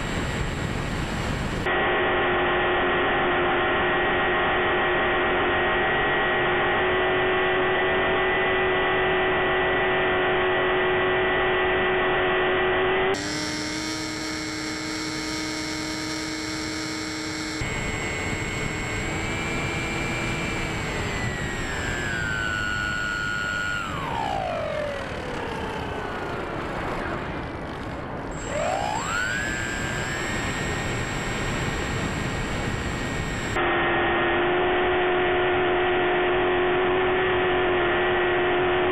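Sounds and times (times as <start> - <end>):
model plane motor whining: 0.0 - 1.7, 13.0 - 33.6
wind rush: 0.0 - 1.7.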